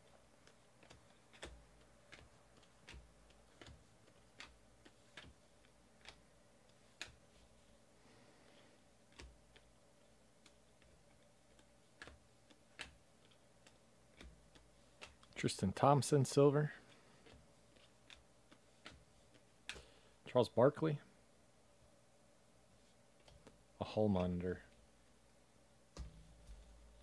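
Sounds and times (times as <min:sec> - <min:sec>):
cards clicking while flipped: 0:00.0 - 0:07.4, 0:08.5 - 0:09.8, 0:10.4 - 0:15.4, 0:16.8 - 0:19.9.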